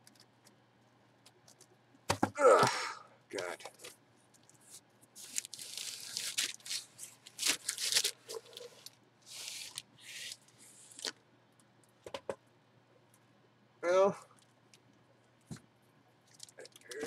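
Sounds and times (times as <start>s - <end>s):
plastic wrapping rustling: 4.6s - 11.1s.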